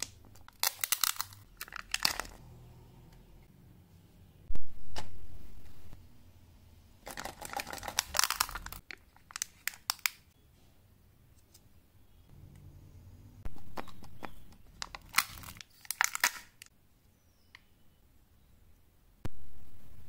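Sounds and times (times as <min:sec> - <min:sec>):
candy wrappers crinkling: 0:00.0 - 0:02.4, 0:07.0 - 0:10.3, 0:14.7 - 0:16.7.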